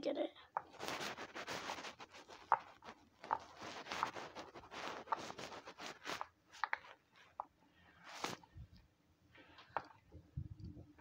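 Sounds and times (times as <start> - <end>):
hands rustling: 0.6 - 8.6.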